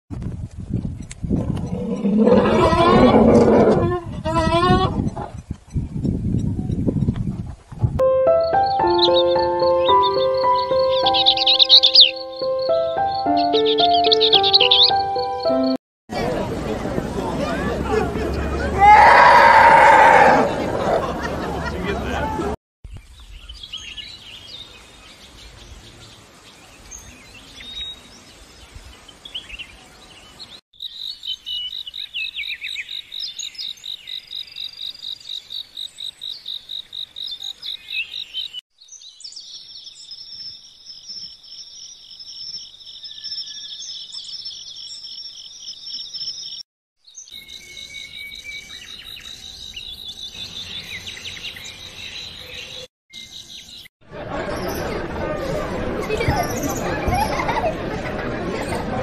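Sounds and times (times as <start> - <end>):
birds chirping: 0.7 - 3.7, 4.6 - 7.4, 8.2 - 55.1.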